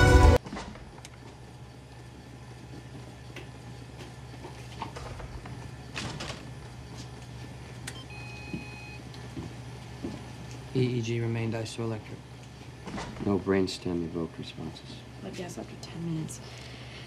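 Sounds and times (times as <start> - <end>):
steady low hum: 0.0 - 17.0
faint electronic tone: 8.0 - 9.0.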